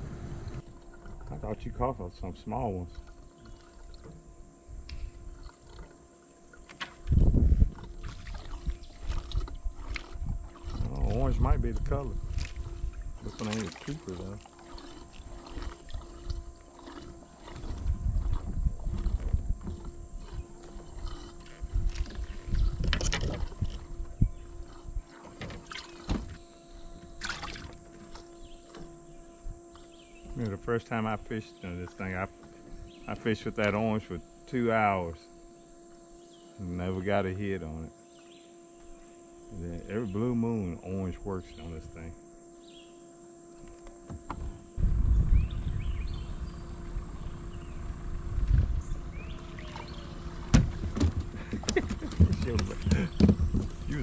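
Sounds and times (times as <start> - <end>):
low uneven rumbling: 0.0 - 25.1, 44.1 - 54.0
gear knocking in plastic kayak: 5.4 - 29.2, 46.1 - 54.0.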